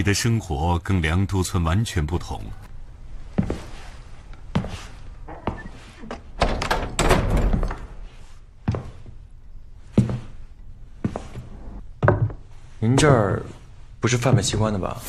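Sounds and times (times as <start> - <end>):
heavy wooden door banging shut: 5.3 - 8.1.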